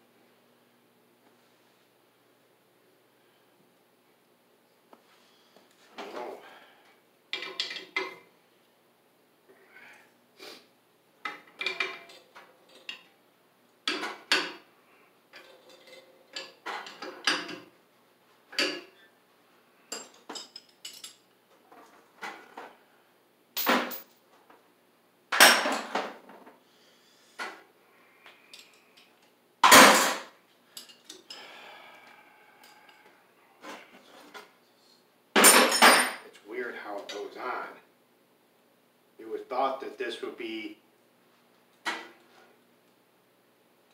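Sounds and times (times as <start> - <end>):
metal tools clinking on pump: 19.9 - 21.2.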